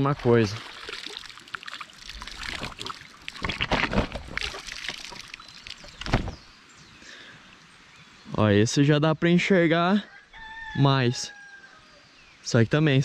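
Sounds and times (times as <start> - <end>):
pond water sloshing and pouring: 0.0 - 6.5
water splashes: 0.0 - 6.6.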